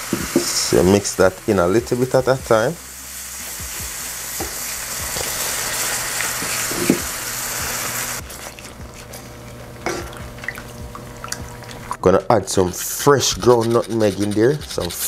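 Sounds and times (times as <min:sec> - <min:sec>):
liquid sizzling in hot pan: 0:00.0 - 0:11.6
wooden spoon scraping pan: 0:08.2 - 0:10.0, 0:12.0 - 0:15.0.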